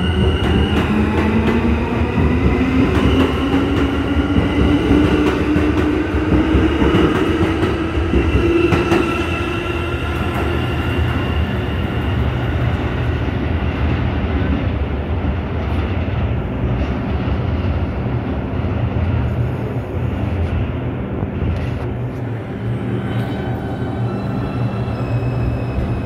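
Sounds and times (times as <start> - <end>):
elevated train rumbling: 0.0 - 26.0
train whine: 0.0 - 26.0.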